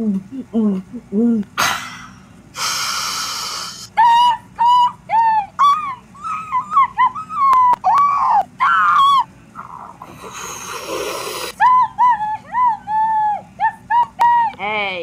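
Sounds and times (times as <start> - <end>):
inflating hiss: 2.6 - 3.9, 10.0 - 11.6
squeaky cartoon dog whimpering: 3.9 - 9.2.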